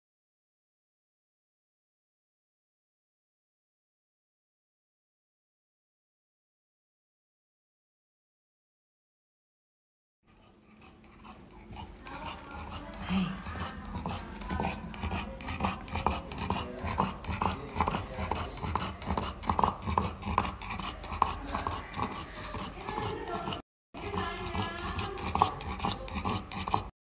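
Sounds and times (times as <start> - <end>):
dog panting with rasping breath: 10.3 - 27.0.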